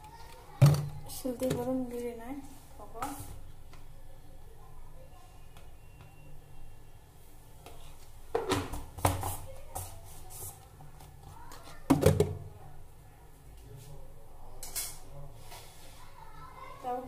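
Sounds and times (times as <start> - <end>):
plastic container and spoon knocks: 11.9 - 12.4.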